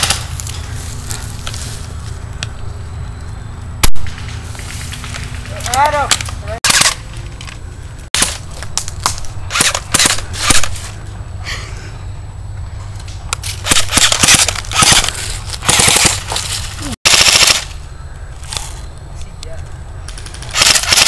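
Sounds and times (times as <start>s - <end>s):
airsoft rifles firing: 5.6s - 7.1s, 8.2s - 11.0s, 13.5s - 16.4s, 17.1s - 17.8s, 20.1s - 21.0s.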